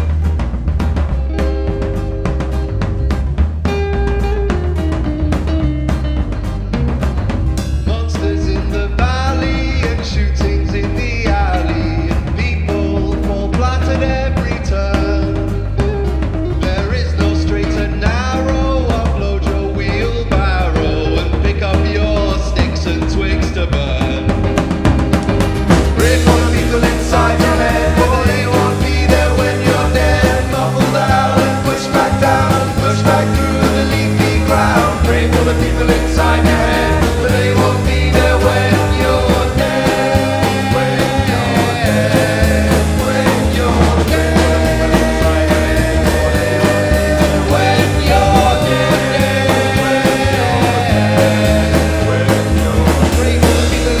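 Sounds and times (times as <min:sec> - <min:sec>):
bass notes: 0:00.0 - 0:54.0
drum kit beat: 0:00.0 - 0:54.0
electric guitars: 0:00.0 - 0:54.0
live rock band playing: 0:00.0 - 0:54.0
backing vocals: 0:07.8 - 0:15.8, 0:25.7 - 0:54.0
man singing lead: 0:07.8 - 0:24.6, 0:25.8 - 0:54.0.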